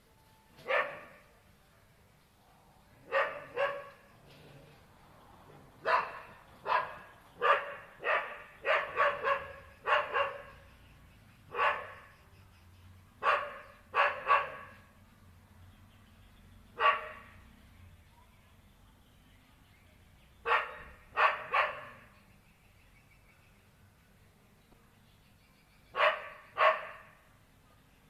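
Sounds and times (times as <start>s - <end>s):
dog barking: 0.6s - 1.3s, 3.0s - 4.1s, 5.8s - 10.6s, 11.5s - 12.1s, 13.2s - 14.9s, 16.8s - 17.4s, 20.4s - 22.1s, 25.9s - 27.3s.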